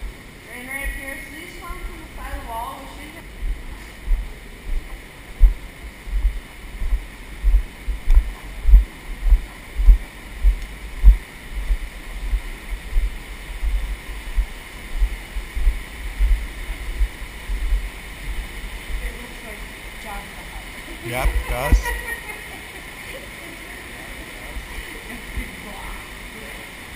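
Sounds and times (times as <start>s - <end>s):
flowing water hiss: 0.0s - 26.9s
microphone handling thumps: 3.4s - 18.5s.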